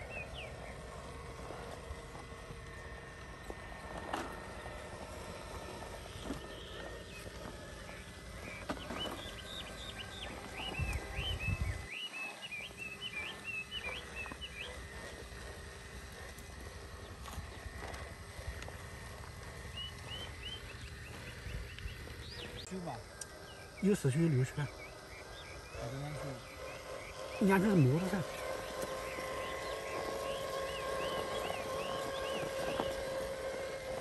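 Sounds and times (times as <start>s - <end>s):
small bird chirping: 6.2s - 15.8s, 16.9s - 33.8s
wind rumble on microphone: 10.7s - 11.9s.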